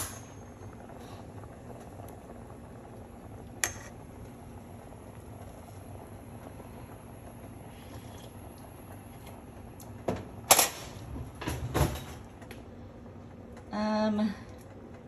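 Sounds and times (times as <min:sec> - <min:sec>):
soup bubbling in pot: 0:00.0 - 0:11.4.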